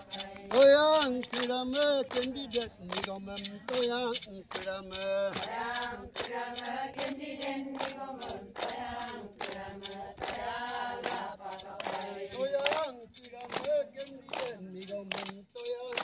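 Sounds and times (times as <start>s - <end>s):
women singing a chant in unison: 0.0s - 0.6s, 5.0s - 14.7s
hands clapping on a steady beat: 0.0s - 16.0s.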